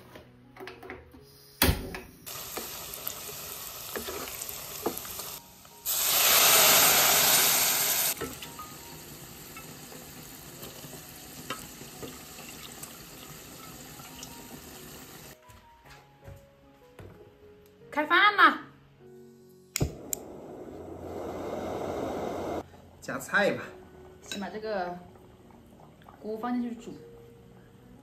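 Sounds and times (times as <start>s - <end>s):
chili oil sizzling in pot: 2.3s - 15.4s.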